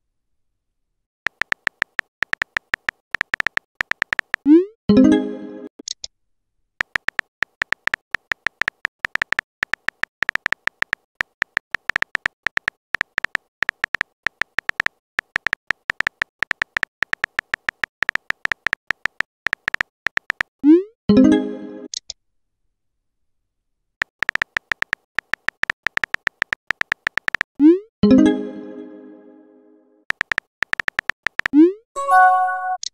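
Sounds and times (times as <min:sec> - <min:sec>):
phone keyboard key clicks: 0:01.3 - 0:04.4, 0:06.8 - 0:20.5, 0:24.1 - 0:27.5, 0:30.1 - 0:31.6
pitched message tone: 0:32.0 - 0:32.9.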